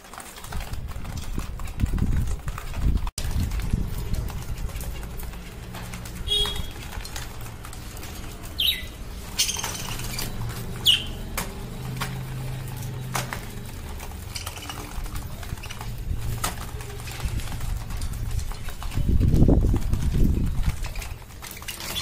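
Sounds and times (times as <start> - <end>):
budgerigars chirping: 8.4 - 11.3.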